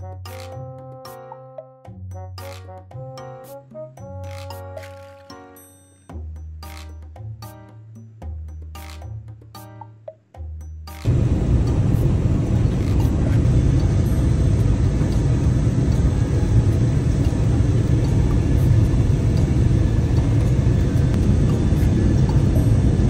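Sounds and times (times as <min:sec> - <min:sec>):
airliner cabin engine rumble: 0:11.1 - 0:23.0.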